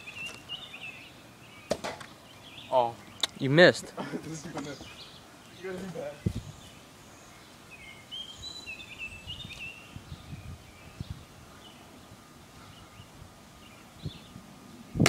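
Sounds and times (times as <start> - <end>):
small bird chirping: 0.0 - 3.5, 4.6 - 11.9
faint outdoor background noise: 0.0 - 15.0
low microphone rumbles: 9.1 - 11.4.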